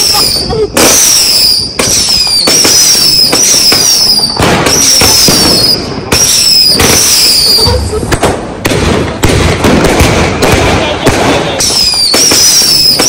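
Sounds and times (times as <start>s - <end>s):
firework whistles: 0.0s - 8.3s, 11.4s - 13.0s
firework bangs: 0.0s - 13.0s.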